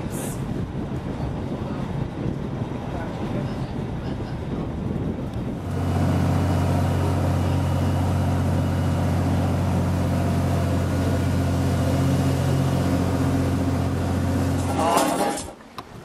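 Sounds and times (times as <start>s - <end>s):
boat engine droning: 5.4s - 15.6s.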